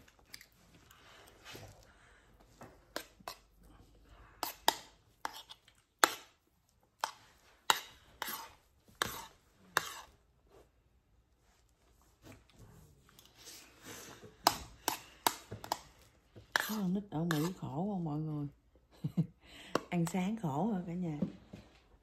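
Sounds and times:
metal spoon scraping a plate: 4.4s - 6.3s, 7.0s - 10.1s, 16.5s - 17.6s.

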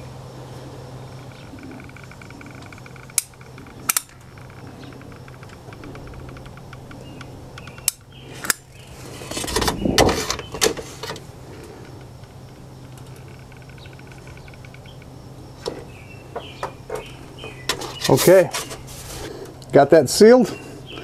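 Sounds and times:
knocks and rubbing: 15.6s - 19.2s.

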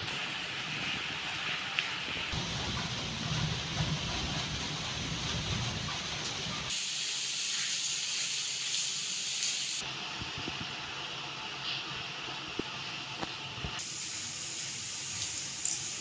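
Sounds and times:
steady rain falling: 0.0s - 16.0s
food sizzling in hot oil: 6.7s - 9.8s, 13.8s - 16.0s.

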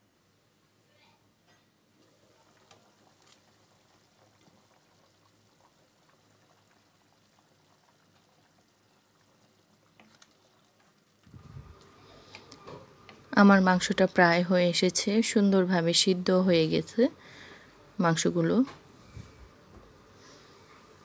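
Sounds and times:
curry bubbling in a pot: 1.9s - 14.1s.

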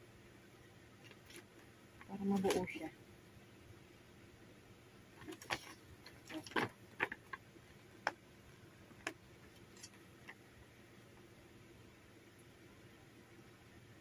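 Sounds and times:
paper crackling: 5.2s - 7.4s.

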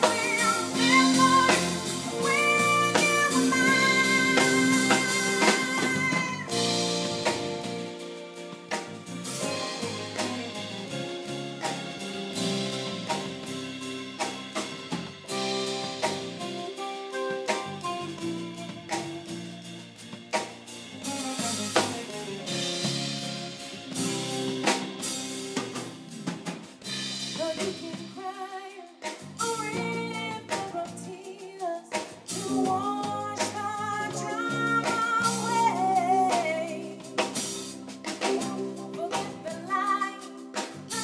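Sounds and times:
woman singing: 0.0s - 6.7s, 27.4s - 37.2s, 38.2s - 41.0s
electric guitar: 0.0s - 27.8s
drum kit beat: 0.0s - 41.0s.

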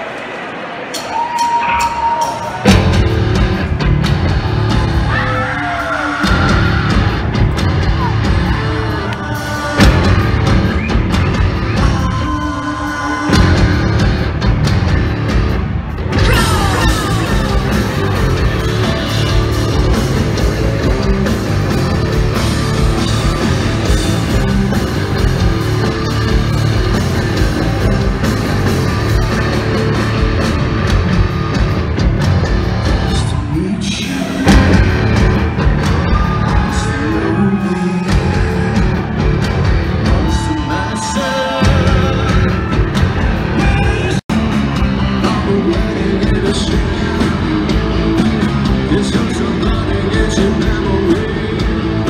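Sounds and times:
live rock band playing: 1.0s - 52.0s
loud band hit: 34.2s - 40.6s.

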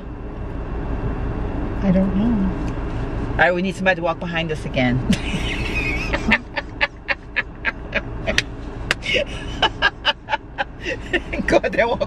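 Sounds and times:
woman laughing: 5.1s - 11.7s.

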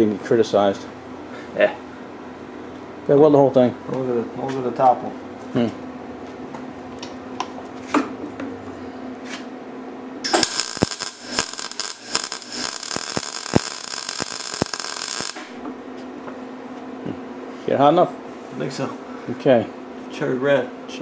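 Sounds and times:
welding arc crackling: 10.2s - 15.6s.

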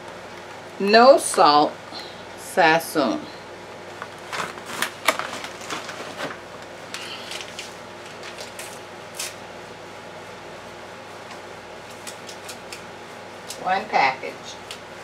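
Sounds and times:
foil packet crinkling: 4.0s - 9.4s.

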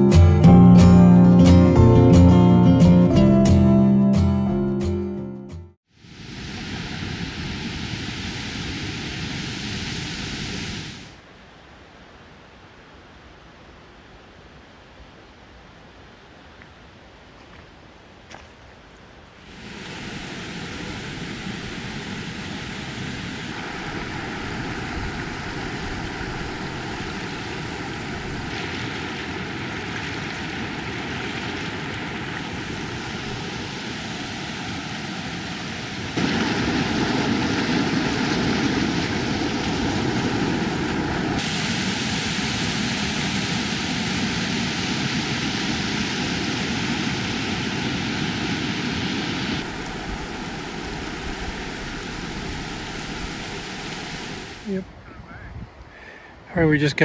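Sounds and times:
waterfall rushing: 19.4s - 54.9s.

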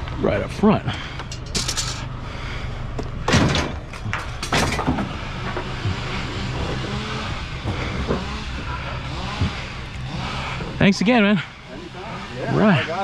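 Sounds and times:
truck engine idling: 2.0s - 12.1s.

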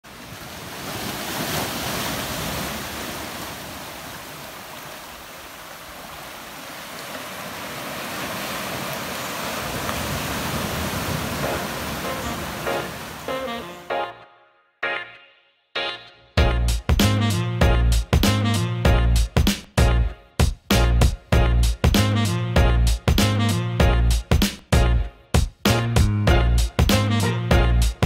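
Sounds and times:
surf breaking over rocks: 0.1s - 13.5s
music: 11.4s - 28.0s.

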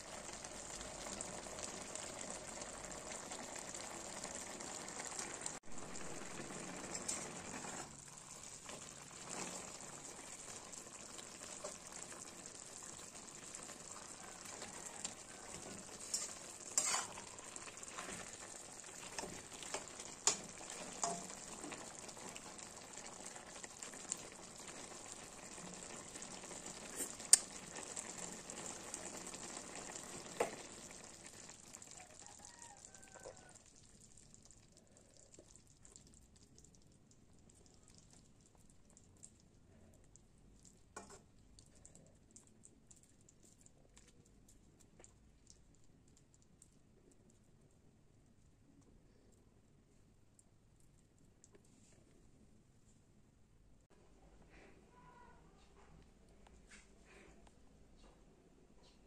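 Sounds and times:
curry sizzling in a wok: 0.0s - 36.4s, 40.8s - 41.7s
metal spatula clinking and scraping: 7.0s - 7.9s, 15.0s - 18.4s, 19.1s - 21.4s.

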